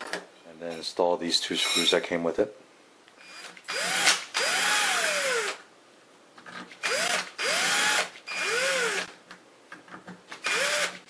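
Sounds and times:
cordless drill driving screws: 0:03.2 - 0:05.6, 0:06.8 - 0:09.1, 0:10.4 - 0:11.0.

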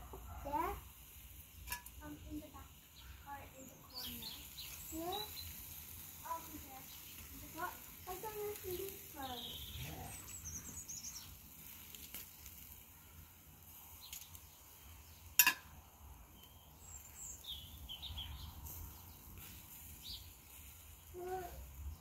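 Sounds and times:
birds chirping: 0:01.0 - 0:22.0.

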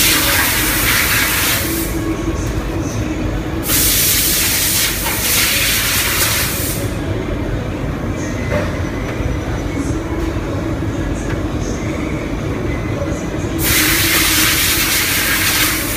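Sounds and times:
factory machinery rumbling: 0:00.0 - 0:15.9
hissing bursts: 0:03.6 - 0:06.8, 0:13.6 - 0:15.9.

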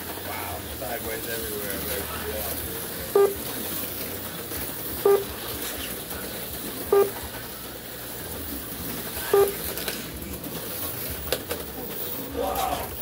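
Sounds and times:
slot cars hissing on track: 0:00.0 - 0:13.0
short electronic beeps: 0:03.2 - 0:03.4, 0:05.0 - 0:05.3, 0:06.9 - 0:07.2, 0:09.4 - 0:09.6.

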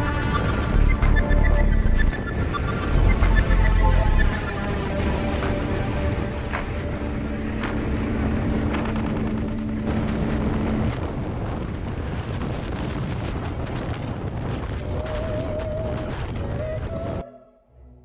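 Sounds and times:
motorcycle engine on rocky track: 0:02.4 - 0:16.4.

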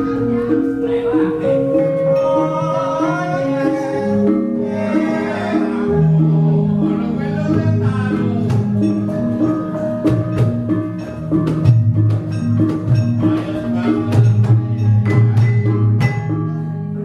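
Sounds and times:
gamelan playing: 0:00.0 - 0:17.0.

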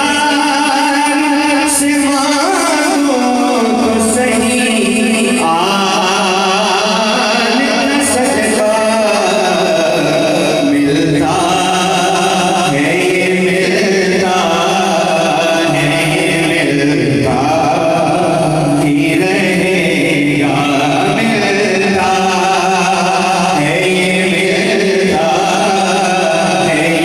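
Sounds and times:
man chanting into microphone: 0:00.0 - 0:27.0.

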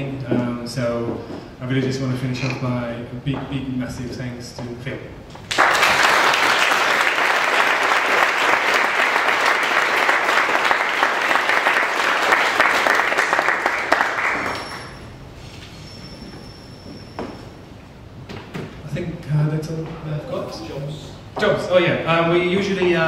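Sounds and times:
audience applauding: 0:05.5 - 0:15.0.

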